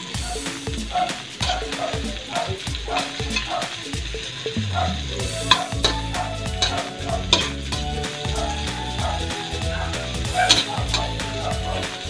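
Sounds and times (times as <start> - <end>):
onions sizzling in oil: 0.0 - 12.0
spatula scraping a wok: 0.4 - 3.9.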